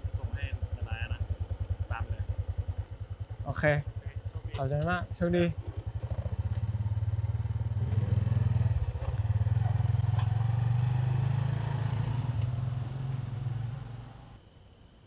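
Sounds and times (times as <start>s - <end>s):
vehicle engine pulling away: 0.0s - 14.4s
crickets chirping: 0.0s - 15.0s.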